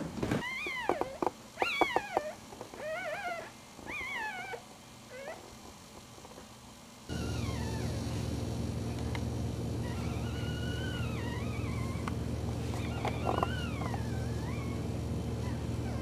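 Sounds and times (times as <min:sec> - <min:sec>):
puppies whining: 0:00.4 - 0:05.6, 0:07.1 - 0:08.3, 0:09.8 - 0:16.0
steady hum: 0:04.5 - 0:16.0.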